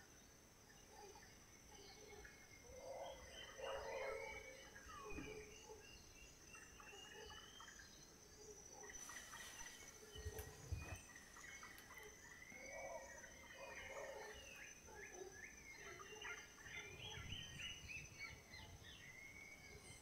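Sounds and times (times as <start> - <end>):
birds chirping and calling: 1.8 - 6.0, 8.9 - 20.0
high insect whine: 8.4 - 14.7.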